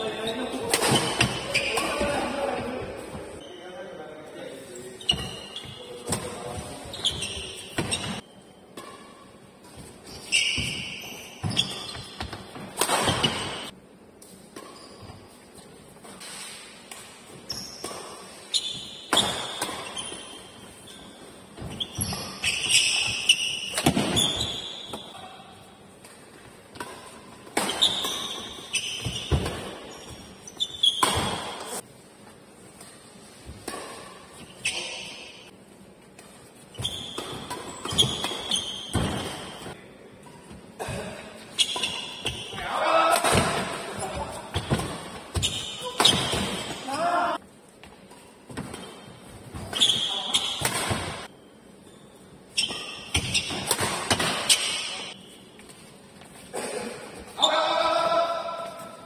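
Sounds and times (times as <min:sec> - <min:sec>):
shoes squeaking on court: 0:00.0 - 0:03.7, 0:04.7 - 0:31.8, 0:32.7 - 0:42.6, 0:43.4 - 0:46.8, 0:47.8 - 0:56.5
rackets hitting shuttlecock: 0:21.6 - 0:25.0, 0:52.6 - 0:55.7.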